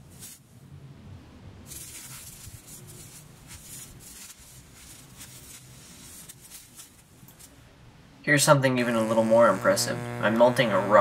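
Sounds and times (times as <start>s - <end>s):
electric arc hissing and crackling: 8.7s - 11.0s.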